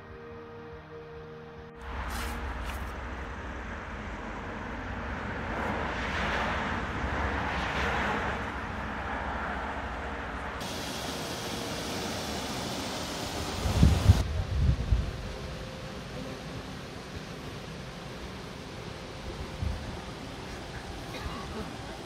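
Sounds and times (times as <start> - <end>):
low rumble: 1.7 - 7.4
broad rushing noise: 1.8 - 22.0
wind buffeting microphone: 13.4 - 15.3.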